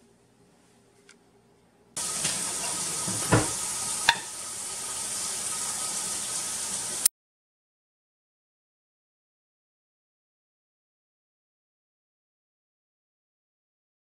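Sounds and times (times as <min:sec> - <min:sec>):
steady hiss: 0:02.0 - 0:07.1
dull knock: 0:03.1 - 0:03.6.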